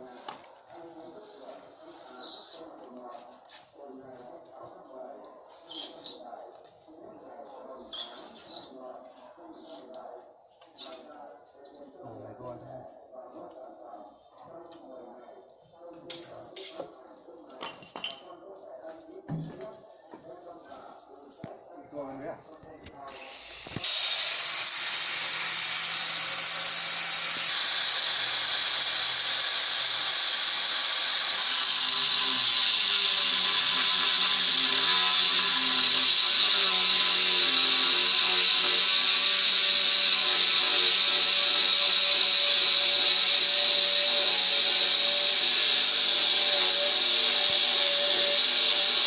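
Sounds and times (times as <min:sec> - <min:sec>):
angle grinder cutting stone: 0:23.2 - 0:49.0.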